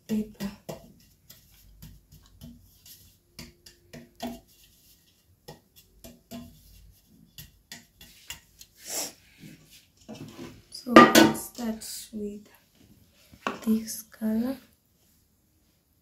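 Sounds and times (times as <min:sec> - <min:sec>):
hand tapping metal cake pan: 0:10.9 - 0:11.5.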